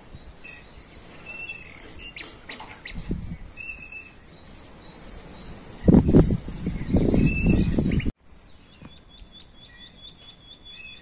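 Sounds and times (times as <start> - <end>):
small birds chirping: 0.0 - 11.0
wind rumble on microphone: 2.7 - 3.8, 5.1 - 8.2.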